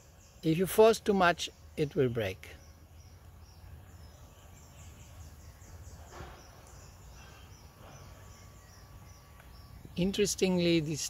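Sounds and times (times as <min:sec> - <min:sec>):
high bird chirp: 0:00.0 - 0:11.0.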